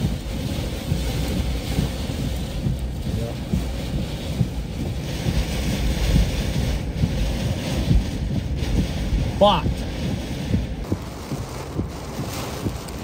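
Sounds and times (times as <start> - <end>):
rain hissing on vehicle: 0.0 - 13.0
wind battering a vehicle: 0.0 - 13.0.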